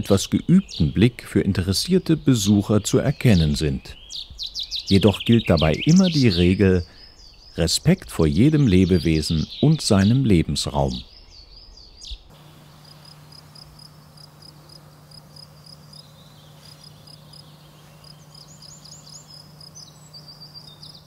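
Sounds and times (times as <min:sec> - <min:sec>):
steady low hum: 0:12.3 - 0:21.0
swooping bird notes: 0:12.3 - 0:21.0.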